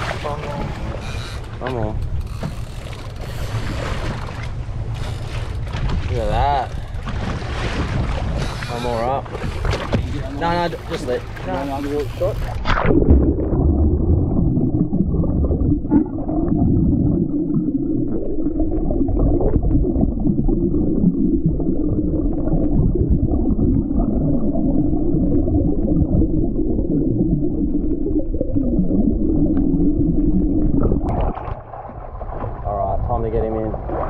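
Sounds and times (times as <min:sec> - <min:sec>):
muffled underwater rush of water: 0:00.0 - 0:34.0.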